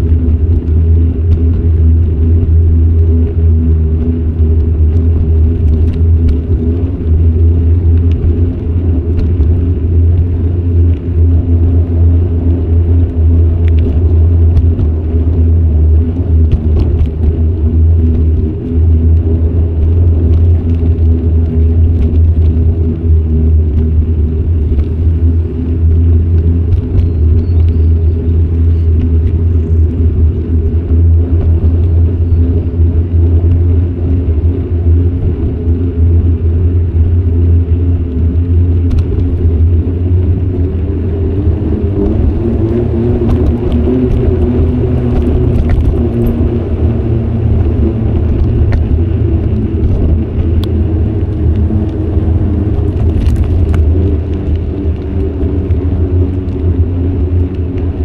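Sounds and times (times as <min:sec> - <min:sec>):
bicycle tyre noise on road: 0:00.0 - 0:58.0
wind buffeting microphone: 0:00.0 - 0:58.0.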